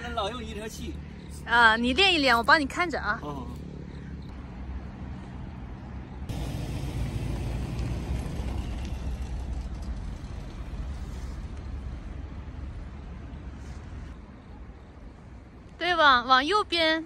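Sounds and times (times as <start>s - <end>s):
car engine running at low speed: 6.3s - 11.6s.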